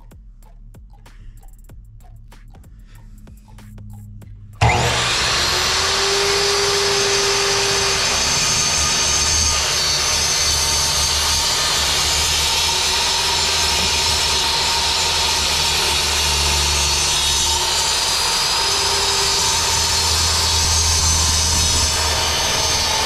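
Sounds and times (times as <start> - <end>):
miter saw cutting wood: 4.6 - 23.0.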